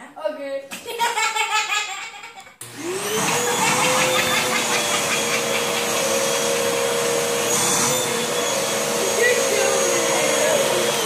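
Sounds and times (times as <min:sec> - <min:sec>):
vacuum cleaner motor whine: 0:02.6 - 0:11.0.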